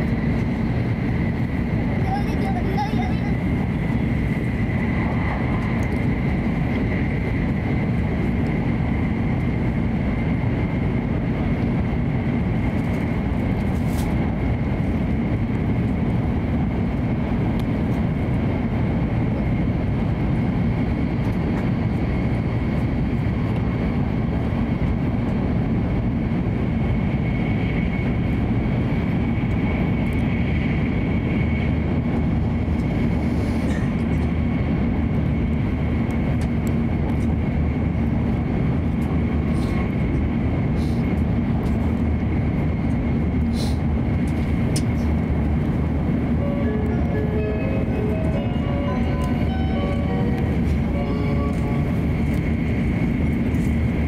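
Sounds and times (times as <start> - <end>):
rumble of wheels on rail: 0.0 - 54.0
faint high whine: 46.3 - 53.1.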